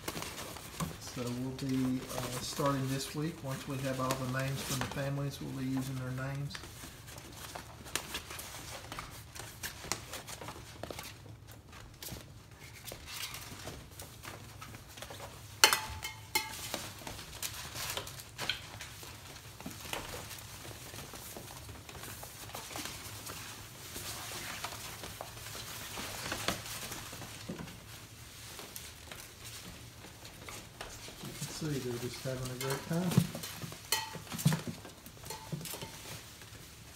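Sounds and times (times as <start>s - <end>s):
fabric tunnel rustling: 0.0s - 15.7s, 16.7s - 36.9s.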